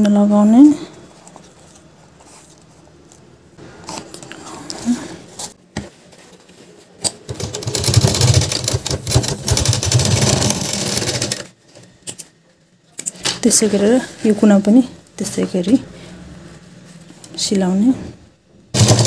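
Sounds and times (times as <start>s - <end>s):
sewing machine stitching: 7.3s - 11.5s, 18.8s - 19.0s.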